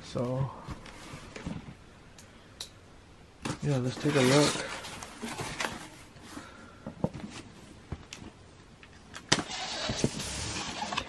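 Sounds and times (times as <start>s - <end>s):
cardboard box rustling and scraping: 3.8s - 6.1s.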